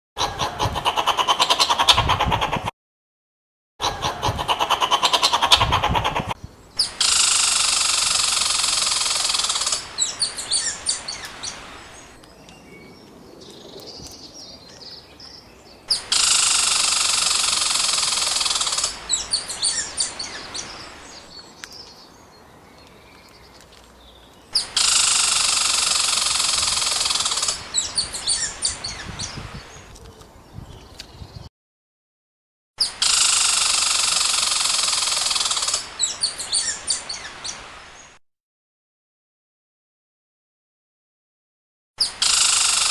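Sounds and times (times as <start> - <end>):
bird-like chirping: 3.8 - 31.5.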